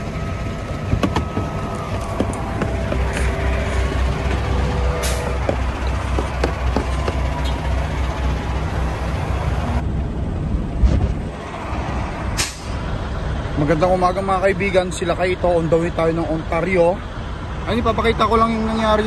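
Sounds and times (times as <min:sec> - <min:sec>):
diesel truck engine running: 0:00.0 - 0:19.0
phone handling clicks and knocks: 0:00.9 - 0:01.5.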